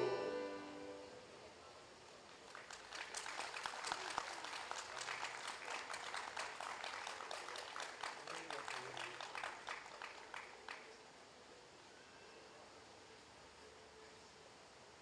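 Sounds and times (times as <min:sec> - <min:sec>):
audience applauding: 0:02.4 - 0:11.0.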